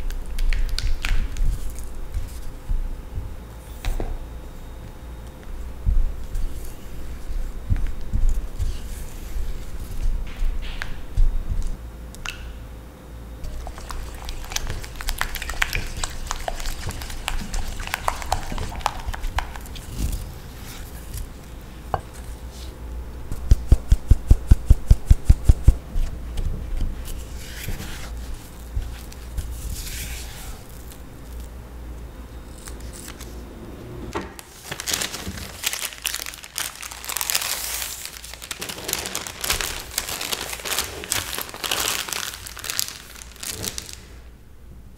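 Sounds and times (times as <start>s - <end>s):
plastic bag crinkling: 13.4s - 20.3s, 34.4s - 44.2s.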